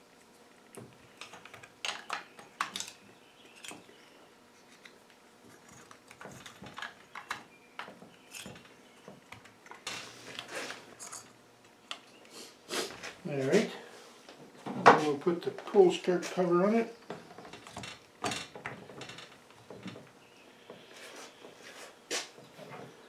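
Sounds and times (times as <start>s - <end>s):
small clicks and clatters: 4.7s - 11.3s.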